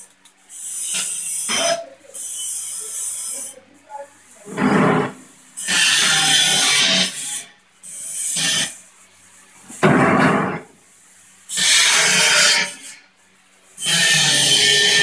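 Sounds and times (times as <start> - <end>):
spot welding machine bursts: 0.5 - 3.6, 4.5 - 9.0, 11.4 - 12.9, 13.8 - 15.0.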